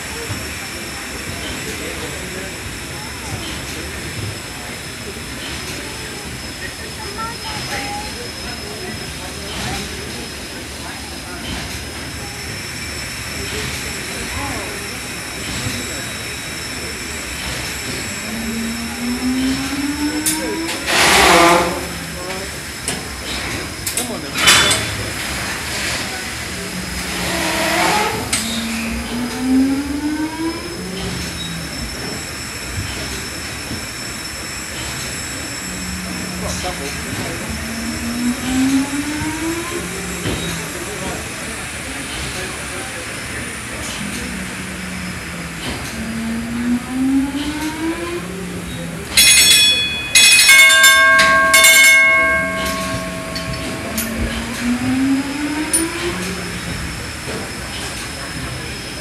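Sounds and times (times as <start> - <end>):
steam engine clattering: 0.0 - 59.0
bell ringing loudly: 49.1 - 56.2.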